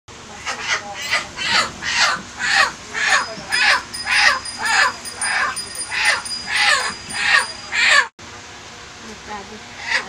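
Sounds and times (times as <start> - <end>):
chicken squawking in distress: 0.5 - 8.1.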